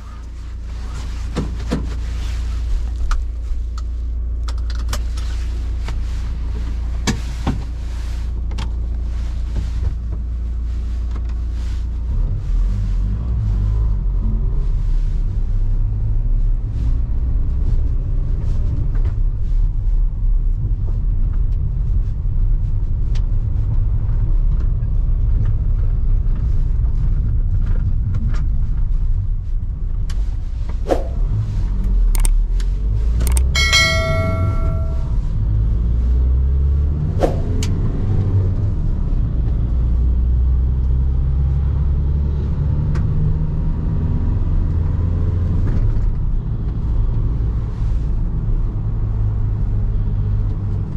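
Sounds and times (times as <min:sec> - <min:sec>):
van engine and tyre rumble: 0:00.0 - 0:50.9
short ringing tone: 0:33.3 - 0:35.3.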